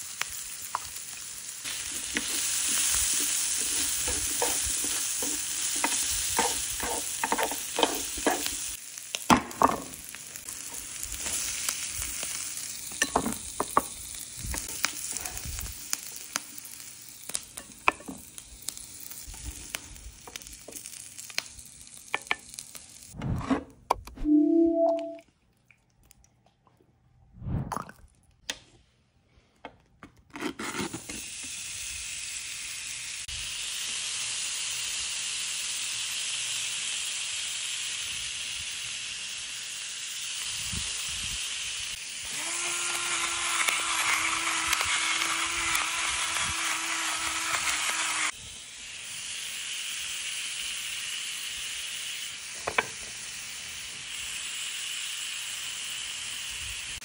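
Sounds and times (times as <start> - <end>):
beef sizzling on grill pan: 0.0 - 23.2, 30.9 - 57.0.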